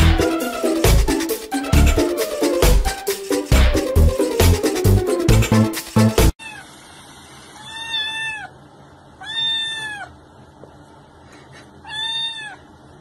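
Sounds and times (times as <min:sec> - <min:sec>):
music: 0:00.0 - 0:06.4
kitten meowing: 0:07.6 - 0:08.5, 0:09.2 - 0:10.2, 0:11.8 - 0:12.6.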